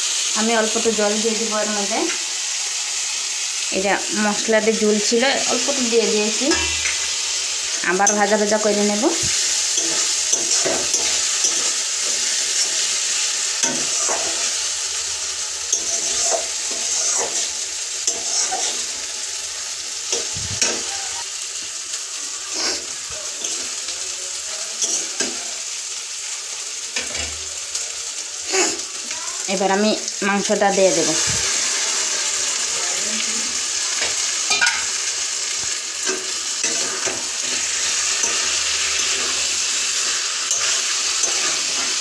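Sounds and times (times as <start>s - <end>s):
paste sizzling in oil: 0.0s - 42.0s
spatula scraping metal pan: 6.4s - 14.6s, 15.7s - 19.0s, 22.5s - 23.7s, 36.0s - 42.0s.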